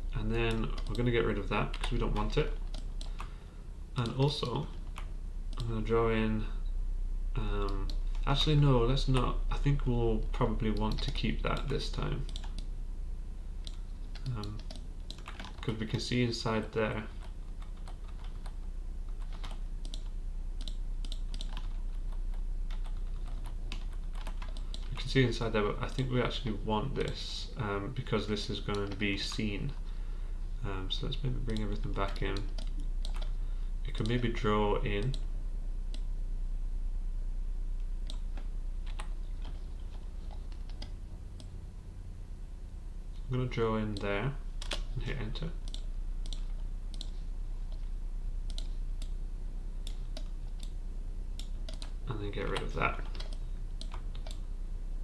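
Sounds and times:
steady low hum: 0.0s - 55.0s
keyboard and mouse clicks: 0.4s - 3.4s, 4.0s - 5.7s, 10.7s - 12.7s, 13.6s - 15.8s, 19.2s - 21.8s, 28.7s - 29.5s, 31.5s - 33.3s, 43.9s - 44.9s, 45.6s - 47.8s, 48.5s - 49.2s, 51.4s - 54.4s.

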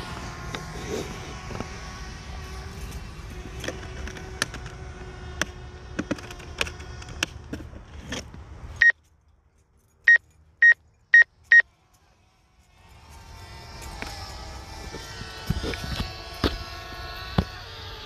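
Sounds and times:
outdoor background: 0.0s - 18.0s
high electronic beeps: 10.1s - 11.6s.

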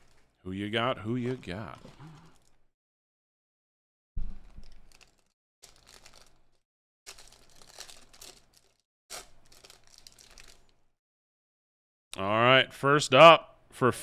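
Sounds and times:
foil wrapper crinkling and tearing: 0.0s - 0.4s, 4.4s - 10.9s.

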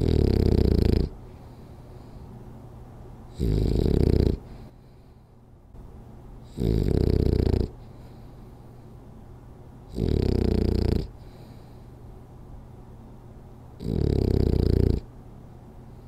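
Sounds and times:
dog snoring: 0.0s - 1.3s, 3.3s - 4.7s, 6.4s - 8.0s, 9.9s - 11.7s, 13.8s - 15.1s.

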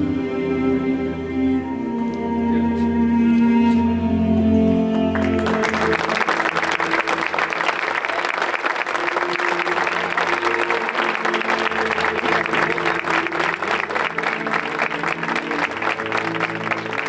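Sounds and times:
music with long steady notes: 0.0s - 17.0s
crowd applauding: 4.9s - 17.0s.

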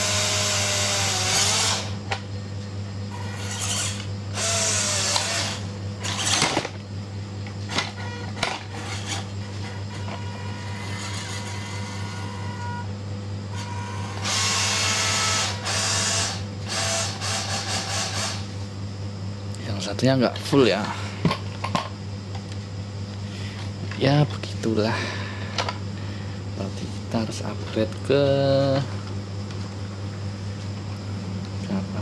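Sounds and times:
small electric motor whining: 0.0s - 2.0s, 3.1s - 6.7s, 7.7s - 12.9s, 13.5s - 18.5s.

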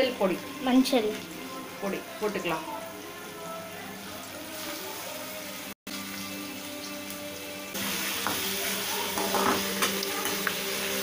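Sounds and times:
vegetables sizzling in oil: 3.9s - 11.0s.

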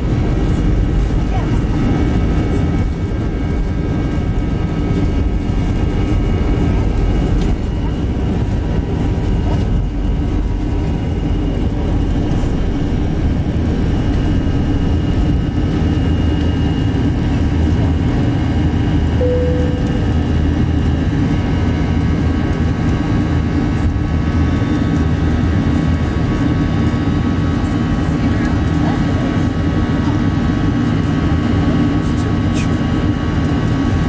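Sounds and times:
jet engines roaring in cabin: 0.0s - 34.0s
short tone: 19.2s - 20.4s.

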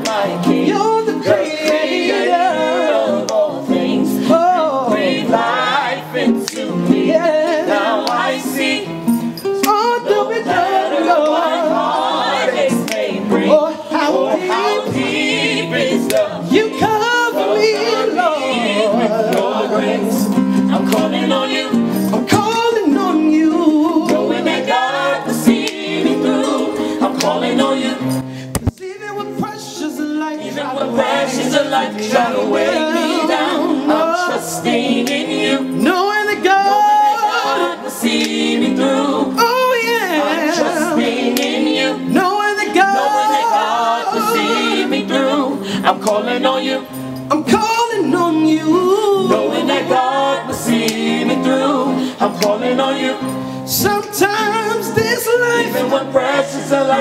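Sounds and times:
vocal group singing in harmony: 0.0s - 57.0s.

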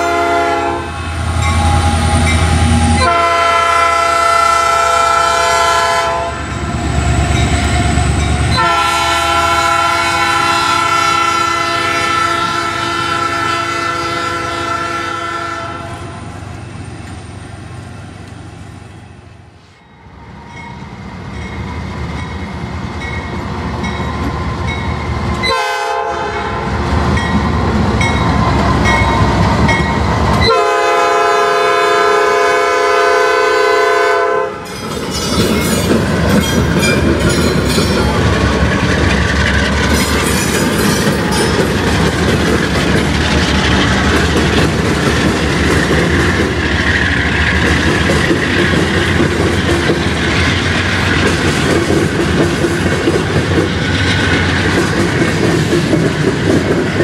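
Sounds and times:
locomotive horn chord blasts: 0.0s - 6.5s, 8.5s - 16.1s, 25.4s - 26.8s, 30.4s - 34.7s
rumble of passing freight trains: 0.0s - 57.0s.

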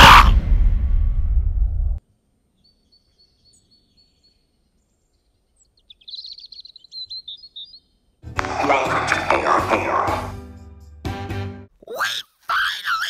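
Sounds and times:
loud low rumble: 0.0s - 2.0s
songbird chirping and trilling: 2.5s - 8.2s.

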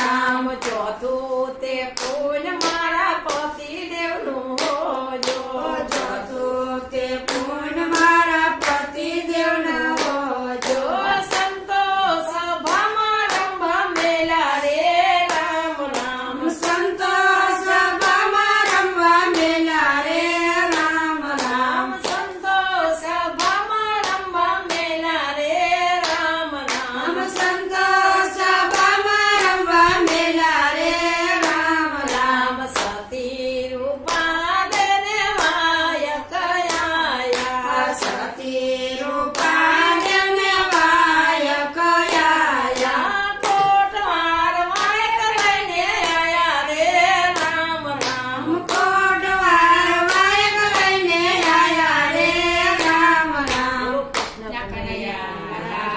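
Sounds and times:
hand claps: 0.0s - 33.2s, 33.9s - 54.4s
women singing together: 0.0s - 55.9s.

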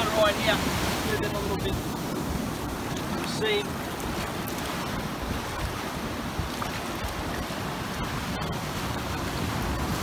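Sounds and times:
surf washing over sand: 0.0s - 10.0s
wind noise on microphone: 0.0s - 10.0s.

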